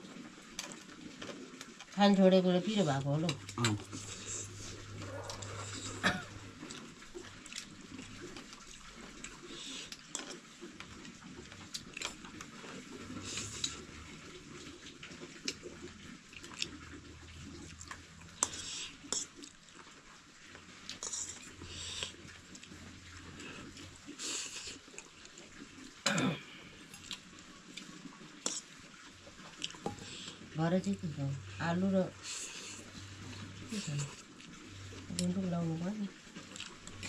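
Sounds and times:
low steady hum: 1.8 - 18.9, 29.6 - 37.0
slurping: 2.6 - 10.4, 11.6 - 14.1, 16.4 - 19.8, 20.6 - 28.7, 32.1 - 35.2.

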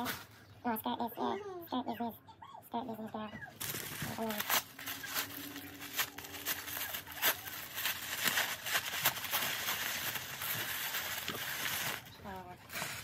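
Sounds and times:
wrapping paper crinkling and tearing: 3.5 - 13.0.

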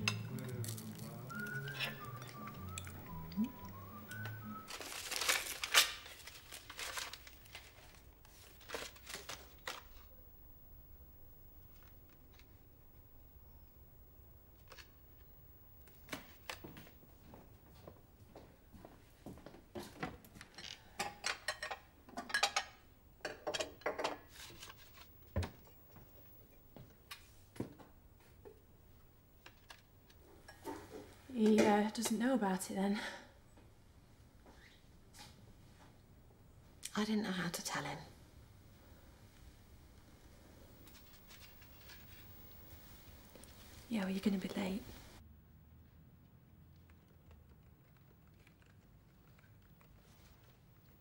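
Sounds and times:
paper rustling: 4.1 - 10.1, 24.3 - 25.2, 40.8 - 45.2
envelope tearing: 4.7 - 10.1.

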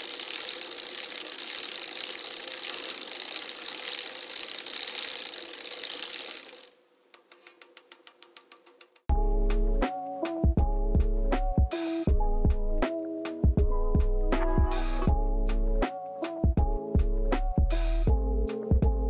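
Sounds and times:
film projector whirring hiss: 0.0 - 6.8
rapid clicks: 0.0 - 9.1.

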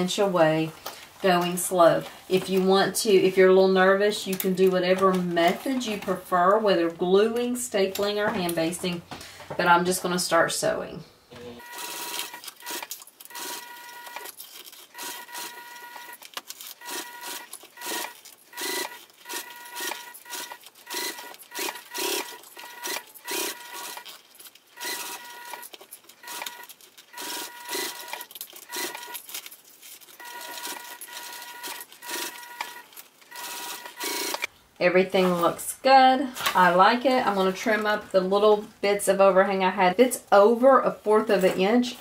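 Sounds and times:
sewing machine stitching: 11.4 - 24.2, 24.8 - 29.2, 30.1 - 34.5.

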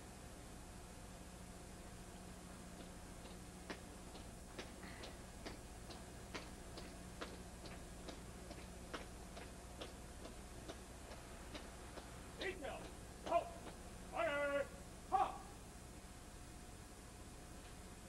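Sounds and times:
steady low hum: 0.0 - 18.0
shoe clicks marching on pavement: 2.8 - 13.8.

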